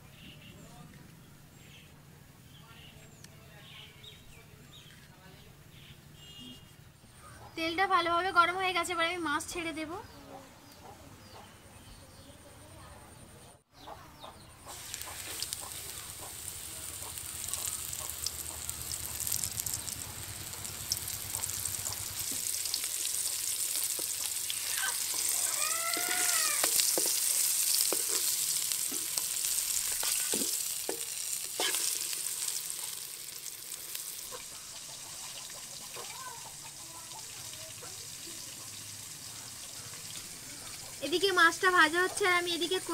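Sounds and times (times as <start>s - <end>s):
fish frying in oil: 14.7s - 42.9s.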